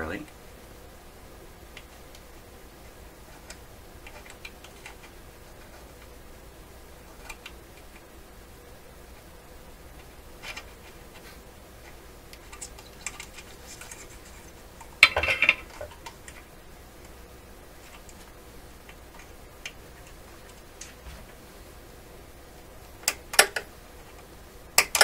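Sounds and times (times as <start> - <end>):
hand tools clicking and tapping: 23.0 - 23.7, 24.8 - 25.0.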